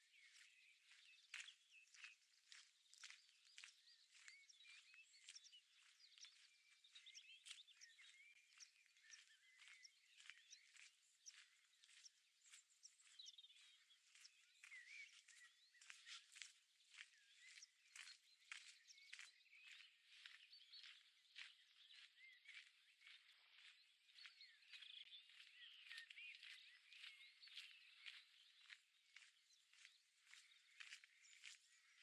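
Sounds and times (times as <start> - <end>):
footsteps crunching on trail: 0.0 - 32.0
small birds chirping: 0.0 - 32.0.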